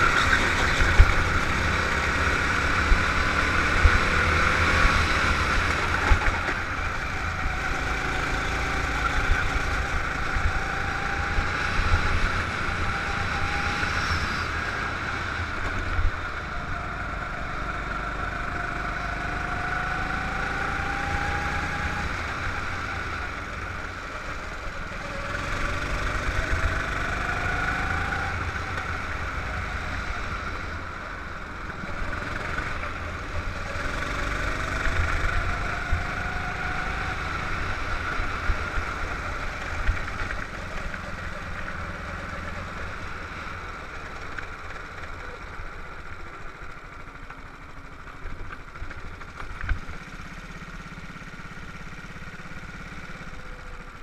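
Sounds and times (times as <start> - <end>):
go-kart engine accelerating: 0.0 - 54.0.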